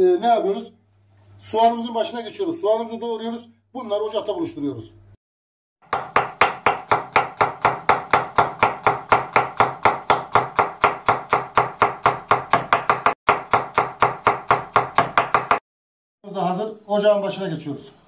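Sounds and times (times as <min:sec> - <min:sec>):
knife chopping on plastic board: 0:05.8 - 0:15.6.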